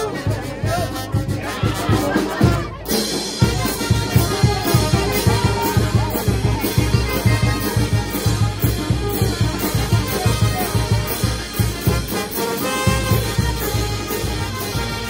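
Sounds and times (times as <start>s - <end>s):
bass drum beat: 0.0s - 15.0s
brass band playing dance tune: 0.0s - 15.0s.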